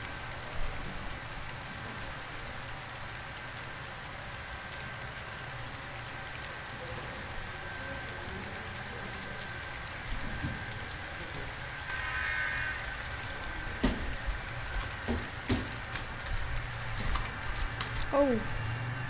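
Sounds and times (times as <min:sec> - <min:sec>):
small wheels clattering on rail: 0:00.0 - 0:19.0
low hum: 0:09.5 - 0:19.0
sharp knocks: 0:13.8 - 0:14.1, 0:15.0 - 0:15.8.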